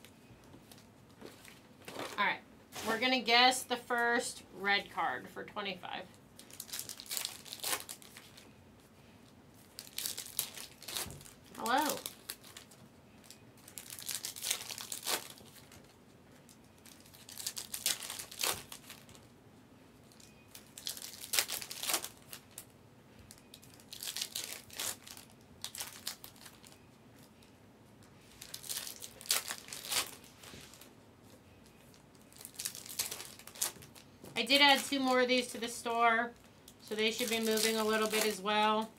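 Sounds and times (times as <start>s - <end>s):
foil wrappers crinkling: 6.0s - 8.6s, 9.6s - 19.3s, 20.0s - 22.7s, 23.3s - 38.9s.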